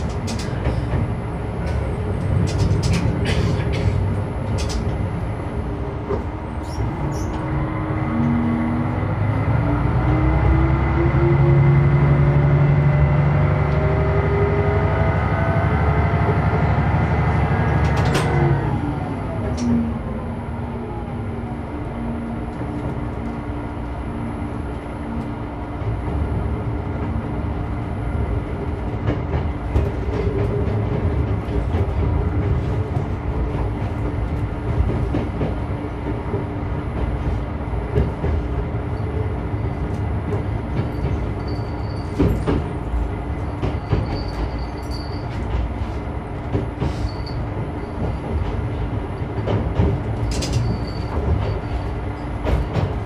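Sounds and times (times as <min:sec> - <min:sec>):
wheels clicking over rail joints: 0:00.0 - 0:05.1, 0:37.9 - 0:53.0
railcar diesel engine: 0:00.0 - 0:53.0
click: 0:19.5 - 0:19.7.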